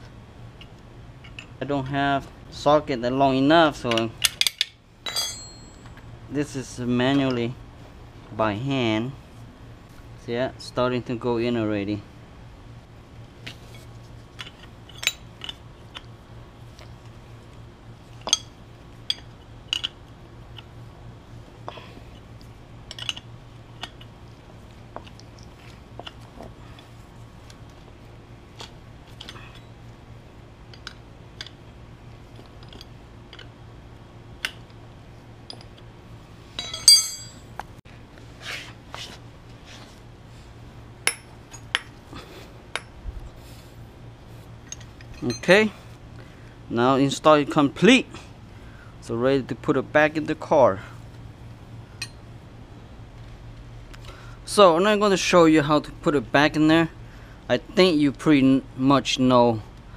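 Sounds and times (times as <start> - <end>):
loud ringing metal clink: 5.0 - 6.0, 36.6 - 37.5
wrench clicking and clinking: 36.6 - 37.4.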